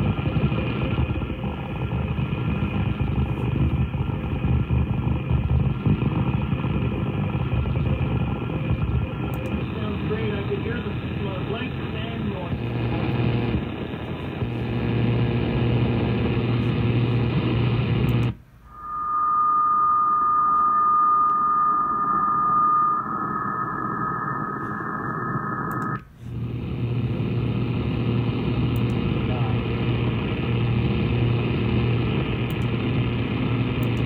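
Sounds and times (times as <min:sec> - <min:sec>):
low hum: 0:00.0 - 0:34.0
radio static hiss: 0:00.1 - 0:19.2, 0:20.4 - 0:34.0
whistle-like beat tone: 0:18.6 - 0:26.0.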